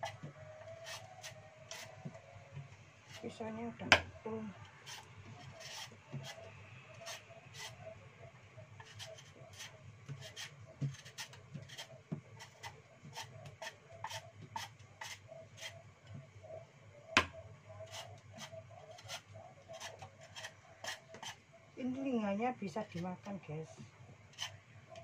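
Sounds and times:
knife scraping vegetable skin: 0.7 - 1.9, 8.8 - 15.8, 17.9 - 21.4, 24.3 - 24.6.

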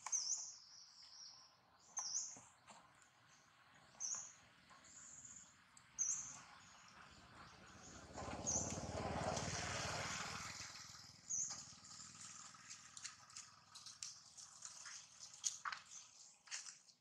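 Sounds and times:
high bird chirps: 0.0 - 2.6, 11.2 - 12.6.

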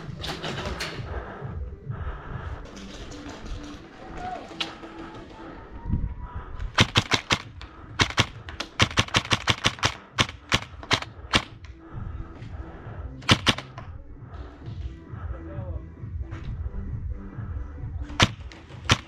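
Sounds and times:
airsoft guns firing: 6.8 - 11.7, 13.2 - 13.8, 18.1 - 19.0.

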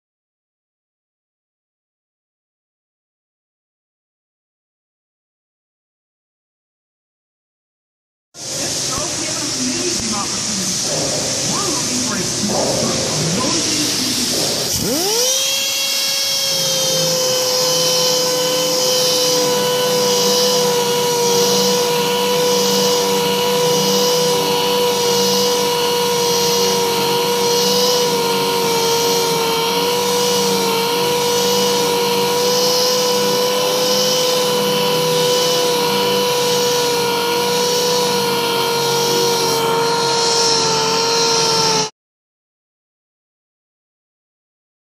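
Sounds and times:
grinder whining: 8.4 - 41.9
wheel grinding metal: 8.4 - 41.9.

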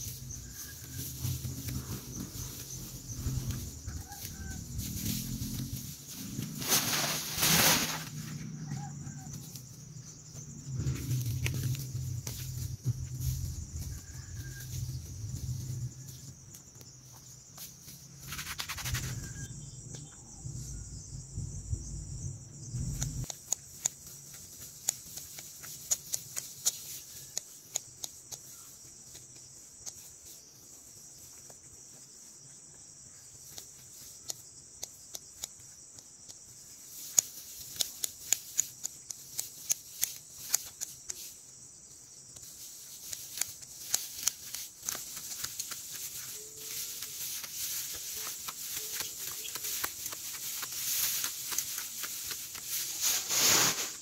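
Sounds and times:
insects buzzing: 0.0 - 54.0
low rumble: 19.2 - 23.3
grass stems snapping: 42.9 - 53.0.

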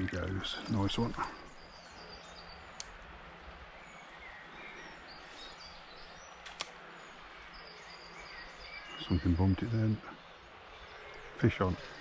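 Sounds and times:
river water hiss: 0.0 - 12.0
small birds chirping: 0.0 - 12.0
short sharp clicks: 6.4 - 6.8.

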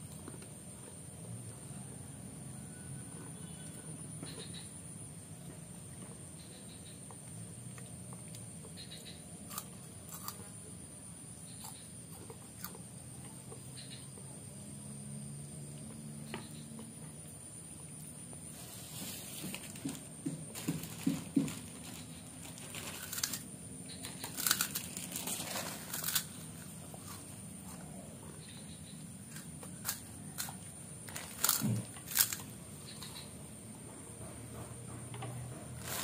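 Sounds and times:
child crunching crackers: 9.5 - 10.4, 20.5 - 27.3, 29.3 - 32.5, 35.8 - 36.0.

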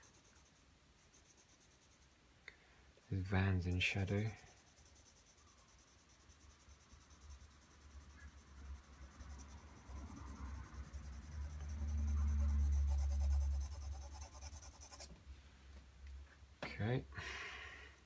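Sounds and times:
pencil scratching on paper: 0.0 - 2.2, 3.2 - 15.1.

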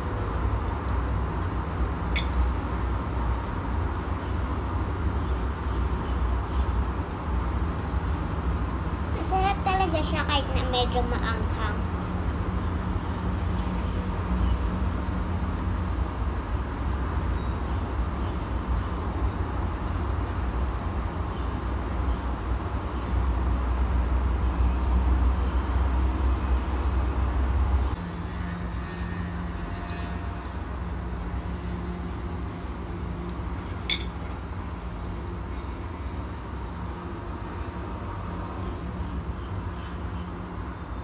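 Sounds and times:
metal fork clinking on plate: 33.9 - 34.2.

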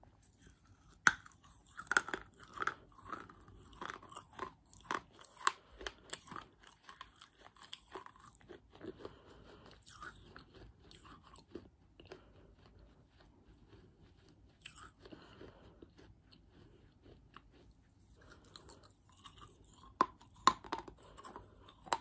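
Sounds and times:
crunchy chewing close to microphone: 0.0 - 22.0.

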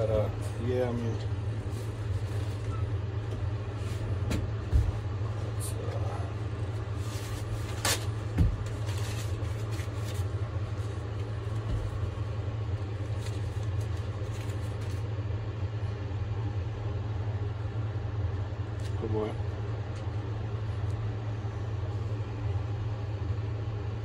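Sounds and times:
low mechanical hum: 0.0 - 24.0
paper towels rustling: 0.2 - 15.2.

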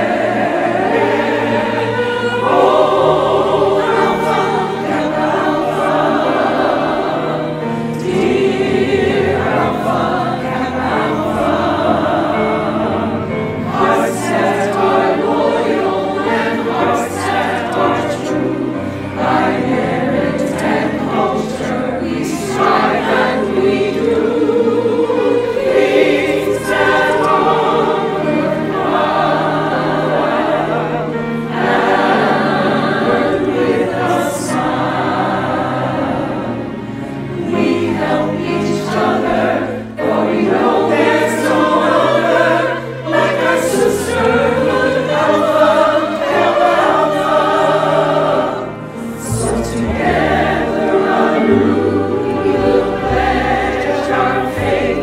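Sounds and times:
women's choir singing a hymn: 0.0 - 55.0.

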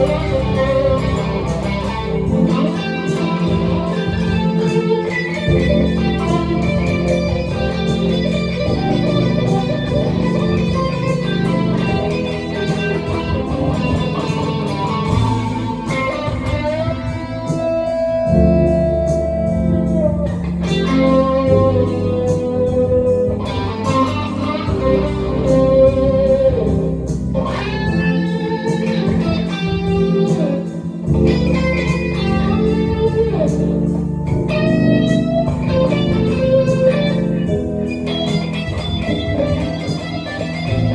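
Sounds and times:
backing track: 0.0 - 40.9
electric guitar bluesy lead: 0.0 - 40.9.

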